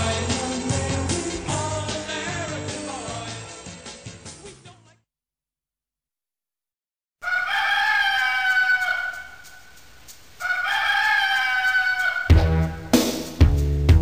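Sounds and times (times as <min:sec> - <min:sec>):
drum kit: 0:00.0 - 0:04.7, 0:12.3 - 0:14.0
rooster crowing: 0:07.2 - 0:09.8, 0:10.4 - 0:12.8.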